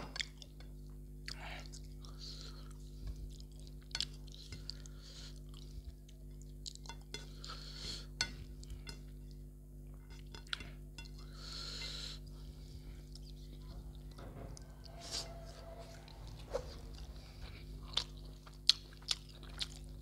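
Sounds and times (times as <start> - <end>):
chewing with wet mouth clicks: 0.1 - 7.3, 13.0 - 13.8, 17.8 - 20.0
low hum: 8.3 - 20.0.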